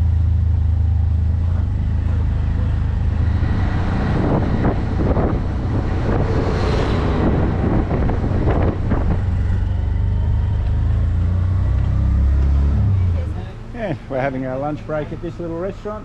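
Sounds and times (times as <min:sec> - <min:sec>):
auto-rickshaw engine running: 0:00.0 - 0:16.0
wind buffeting microphone: 0:02.8 - 0:10.7.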